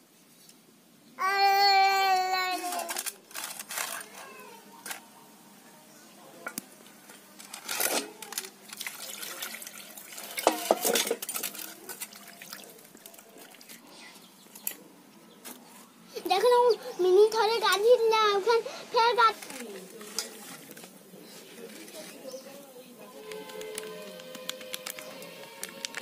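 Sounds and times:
steel bowl handling: 0:06.4 - 0:13.8, 0:19.3 - 0:26.0
water splashing into steel bowl: 0:07.8 - 0:13.8.

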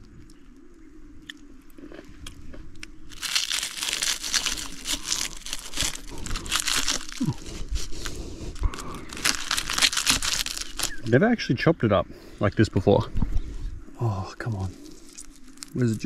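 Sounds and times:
knife crunching through shell: 0:02.8 - 0:11.1.

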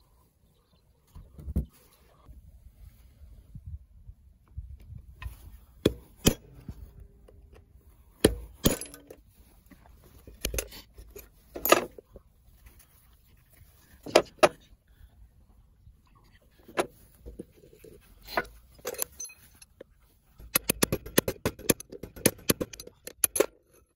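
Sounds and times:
screwdriver clinking on metal gears: 0:18.2 - 0:19.8, 0:20.4 - 0:23.9.

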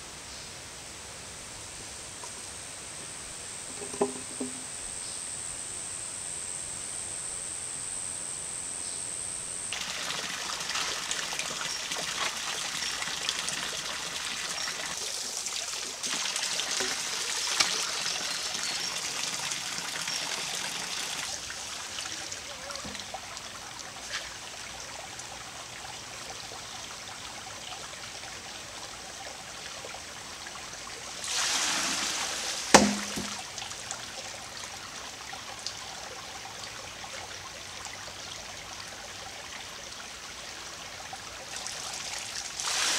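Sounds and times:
wooden hammer knock: 0:03.7 - 0:04.6, 0:32.8 - 0:33.4
rush of water: 0:09.7 - 0:25.2, 0:31.0 - 0:36.0, 0:41.3 - 0:42.9
creek trickling: 0:09.7 - 0:42.9.

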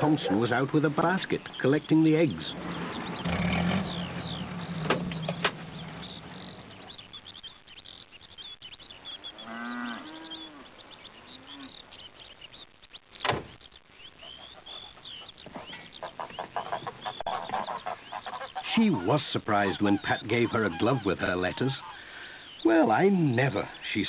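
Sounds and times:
small birds chirping: 0:00.0 - 0:24.0
cow mooing: 0:09.4 - 0:10.6.

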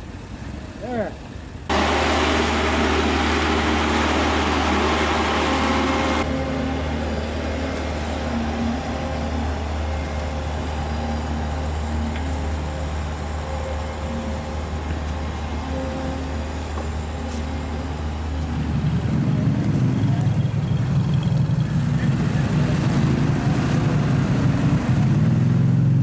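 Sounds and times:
engines idling: 0:00.0 - 0:26.0
loud rushing noise: 0:01.7 - 0:21.1, 0:21.7 - 0:26.0.

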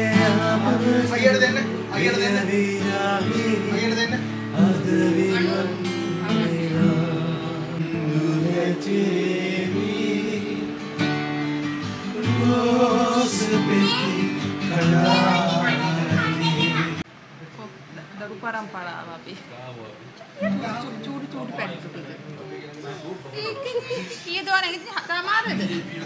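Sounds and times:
man singing: 0:00.0 - 0:11.1, 0:12.0 - 0:17.0
acoustic guitar: 0:00.0 - 0:17.1, 0:20.1 - 0:26.0.

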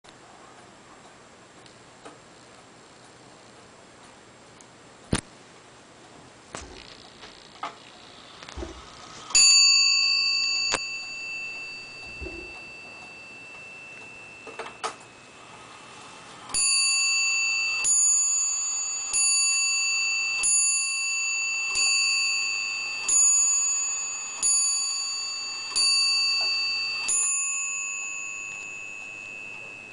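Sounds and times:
wall clock bell striking: 0:09.3 - 0:15.9, 0:16.5 - 0:29.9.

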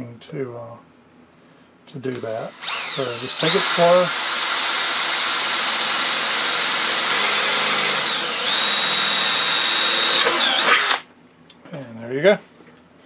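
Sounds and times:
cordless drill boring sheet metal: 0:02.1 - 0:11.0.

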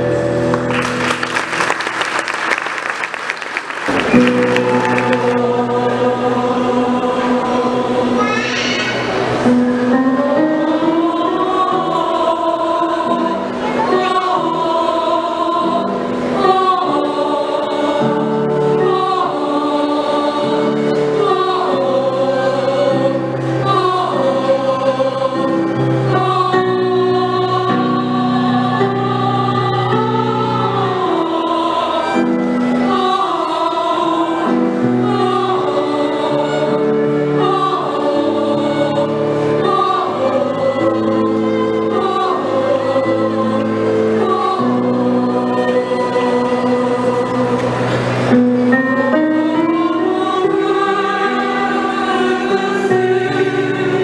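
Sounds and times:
choir singing chords: 0:00.0 - 0:54.0
higher vocal line: 0:04.1 - 0:18.0.

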